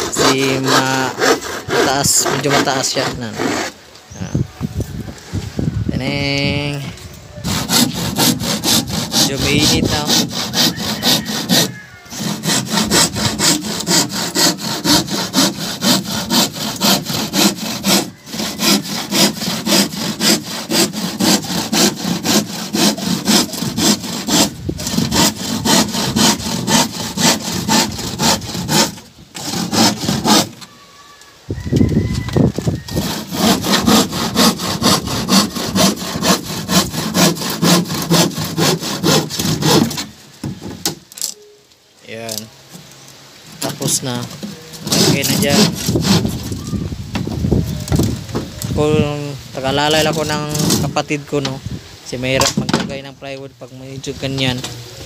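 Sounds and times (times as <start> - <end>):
handsaw cutting plywood: 0.0 - 3.8, 7.4 - 30.7, 32.6 - 41.0, 43.6 - 46.6, 48.8 - 51.6.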